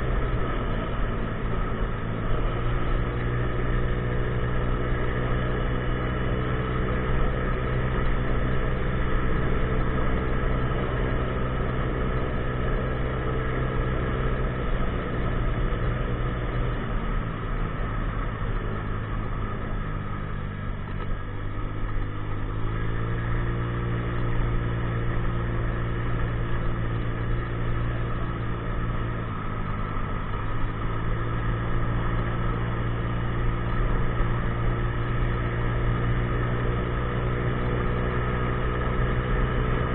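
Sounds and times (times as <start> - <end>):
scooter engine running: 0.0 - 39.9.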